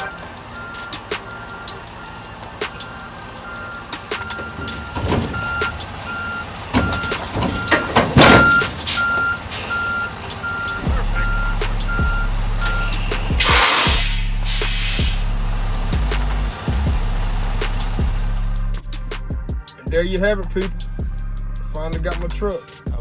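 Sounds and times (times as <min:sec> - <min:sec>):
truck backup alarm beeping: 0:00.0 - 0:15.9
diesel engine running low: 0:00.0 - 0:21.7
air brakes hissing: 0:00.5 - 0:10.2, 0:12.6 - 0:15.4
knocks: 0:06.7 - 0:08.8.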